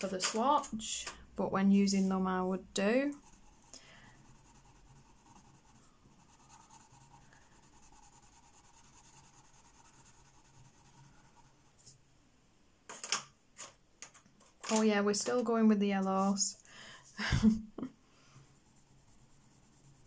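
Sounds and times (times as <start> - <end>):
coloured pencil scratching on paper: 3.1 - 12.0, 18.4 - 20.0.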